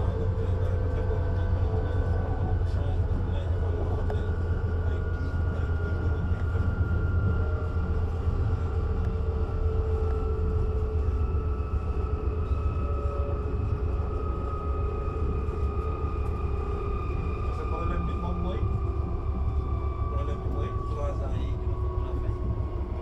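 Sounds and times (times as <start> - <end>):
electric traction motor whine: 0.0 - 23.0
train wheels rumbling on track: 0.0 - 23.0.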